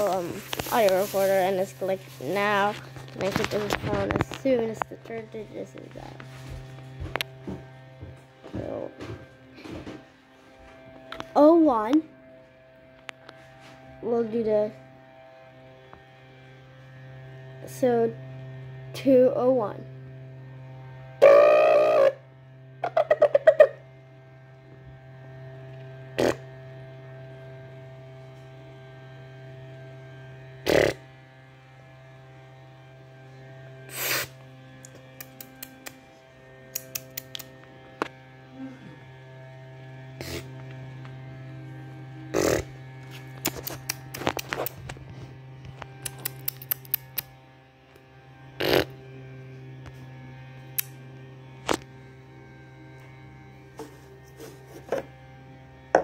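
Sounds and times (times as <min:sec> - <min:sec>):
telephone line hum: 0:00.0 - 0:56.0
sharp clicks and knocks: 0:46.0 - 0:47.3.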